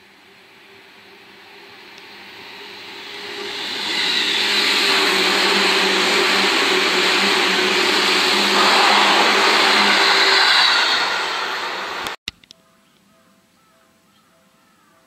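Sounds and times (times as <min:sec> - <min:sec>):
train wheels rushing on rails: 0:00.0 - 0:12.2
low hum: 0:04.9 - 0:12.2.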